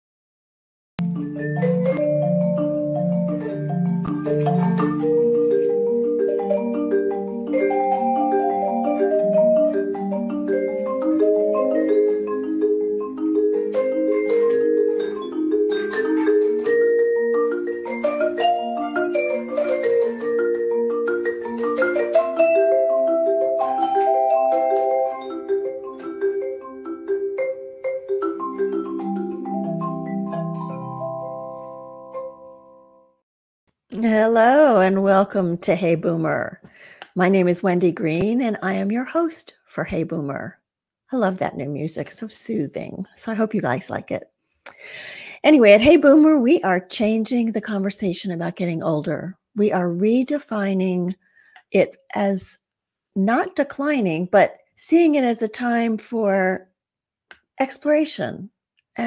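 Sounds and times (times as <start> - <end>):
mallet percussion music: 1.0 - 33.0.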